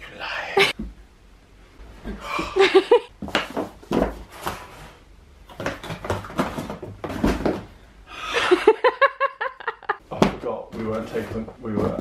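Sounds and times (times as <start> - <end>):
books knocking and thumping: 3.2 - 7.8, 10.1 - 12.0.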